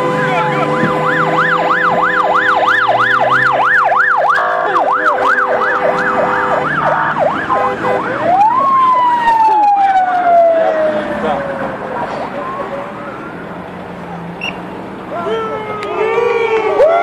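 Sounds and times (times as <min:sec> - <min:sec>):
steady siren tone: 0:00.0 - 0:13.6
sirens yelping: 0:00.0 - 0:17.0.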